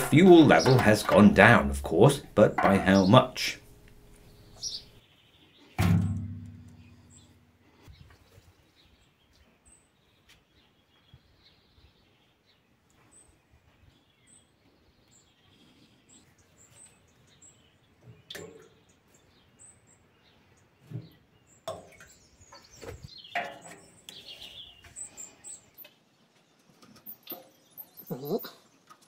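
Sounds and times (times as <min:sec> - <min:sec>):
faint high bird chirps: 0:27.0 - 0:28.7.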